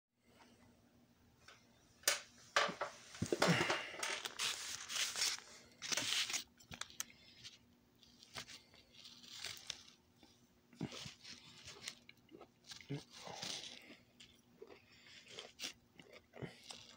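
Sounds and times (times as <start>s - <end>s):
chewing raw broccoli: 5.9s - 16.9s.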